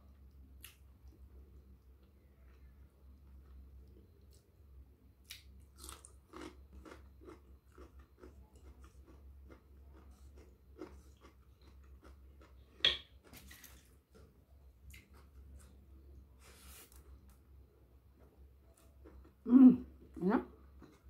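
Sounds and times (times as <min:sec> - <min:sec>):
crunchy chewing of cabbage: 0:05.3 - 0:12.8.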